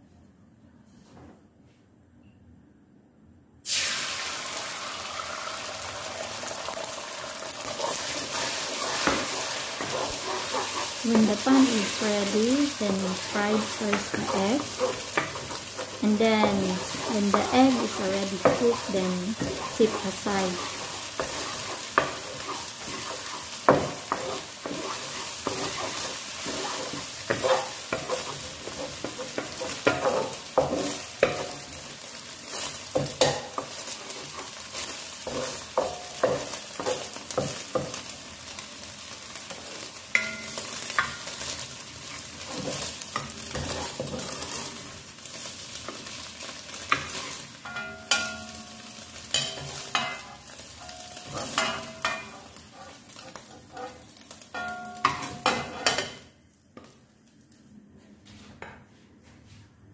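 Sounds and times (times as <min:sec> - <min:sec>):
eggs sizzling in oil: 0:03.6 - 0:56.4
wooden spatula scraping pan: 0:07.6 - 0:31.7, 0:32.4 - 0:38.0, 0:42.1 - 0:44.9, 0:51.2 - 0:54.2, 0:55.0 - 0:56.1.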